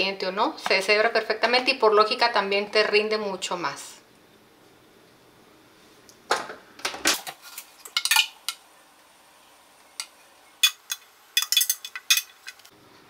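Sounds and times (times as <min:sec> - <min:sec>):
metal spoon knocking and scraping: 0:10.6 - 0:12.6.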